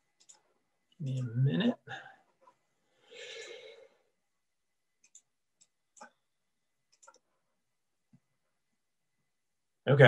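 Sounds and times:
faint computer clicks: 0.2 - 0.5, 5.0 - 6.2, 6.9 - 7.3.

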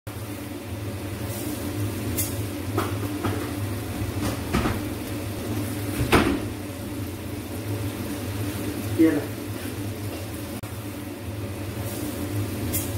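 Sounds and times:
steady low hum: 0.1 - 12.9.

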